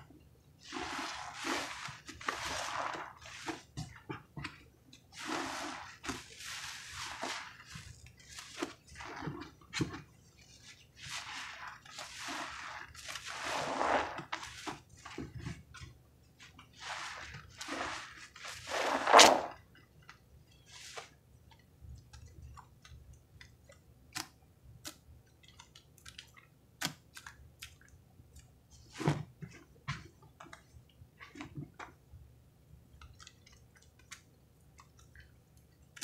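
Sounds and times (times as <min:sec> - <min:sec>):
sponge squelching in foam: 0:00.6 - 0:15.6, 0:16.4 - 0:19.6, 0:20.7 - 0:21.2.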